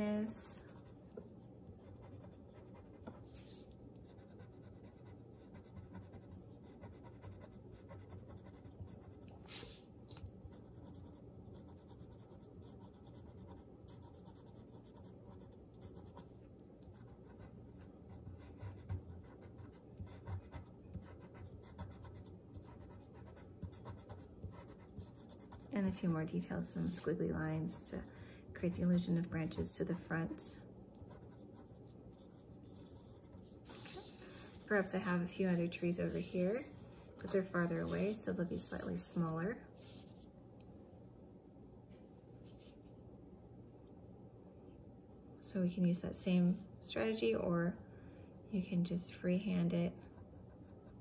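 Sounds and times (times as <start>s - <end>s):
pencil scratching on paper: 0.7s - 9.8s, 10.5s - 16.3s, 16.9s - 30.4s, 31.0s - 34.1s, 34.7s - 38.2s, 49.9s - 51.0s.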